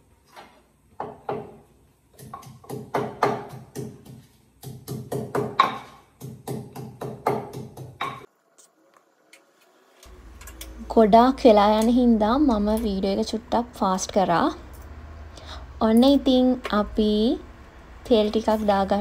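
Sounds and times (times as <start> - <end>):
pestle pounding in clay mortar: 1.0 - 8.3.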